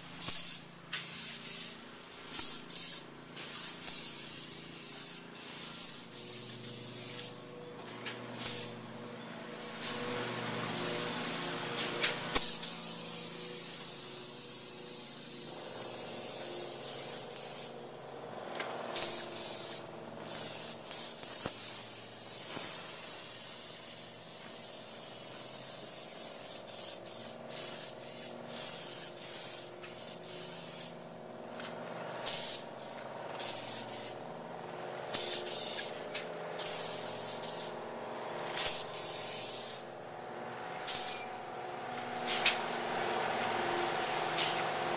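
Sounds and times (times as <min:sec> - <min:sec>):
spray gun hissing: 0:00.0 - 0:07.4, 0:08.3 - 0:08.8, 0:09.5 - 0:31.1, 0:32.2 - 0:34.5, 0:35.1 - 0:40.0, 0:40.7 - 0:44.9.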